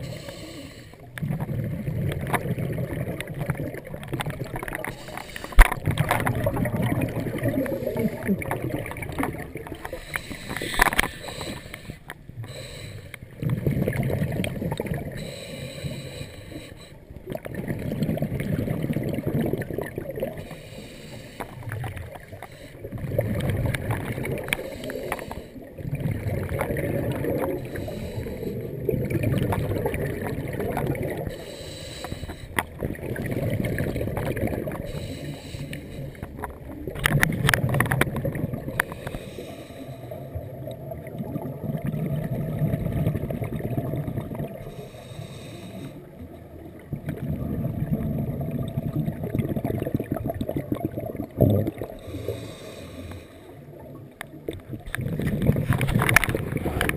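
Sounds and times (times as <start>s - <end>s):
diver breathing through regulator: 0.0s - 1.6s, 4.8s - 5.8s, 9.7s - 13.4s, 15.1s - 17.1s, 20.4s - 23.0s, 24.4s - 25.7s, 27.4s - 28.9s, 31.2s - 32.7s, 34.7s - 36.5s, 38.7s - 40.4s, 44.6s - 46.2s, 51.9s - 53.8s
bubbles rumbling underwater: 1.0s - 15.4s, 17.1s - 20.6s, 21.5s - 31.5s, 32.4s - 45.2s, 46.0s - 52.9s, 53.7s - 56.9s.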